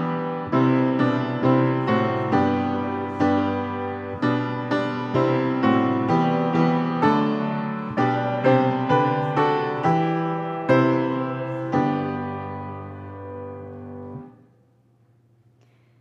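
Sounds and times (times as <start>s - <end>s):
piano chords: 0.0s - 14.6s.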